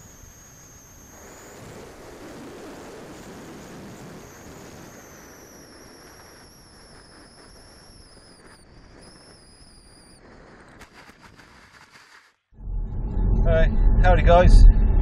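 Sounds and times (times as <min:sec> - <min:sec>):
faint high motor whine: 0:00.0 - 0:11.4
wind rushing over microphone: 0:00.0 - 0:11.6
scratchy rattle in grass: 0:00.0 - 0:12.4.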